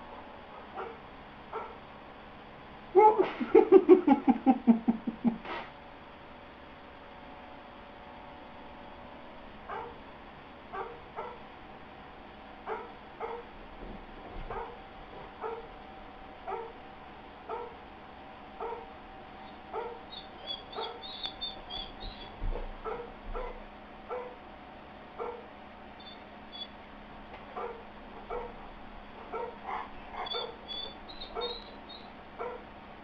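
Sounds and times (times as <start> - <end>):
dog whining and yipping: 19.5 - 23.6, 26.0 - 26.8, 29.4 - 32.6
dog high squeaks: 20.1 - 22.4, 26.0 - 26.7, 30.2 - 32.1.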